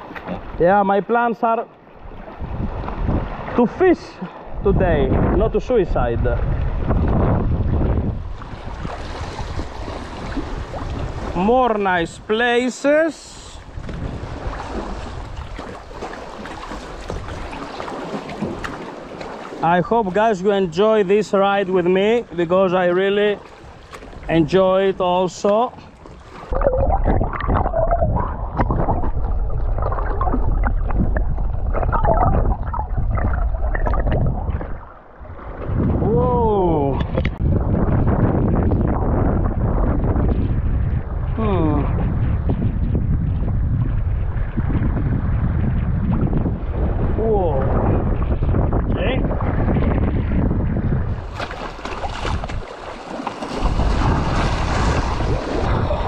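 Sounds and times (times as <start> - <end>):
wind rumbling on microphone: 1.8 - 56.0
waves splashing over rocks: 8.4 - 37.4, 51.1 - 56.0
muffled underwater bubbling: 26.4 - 35.0.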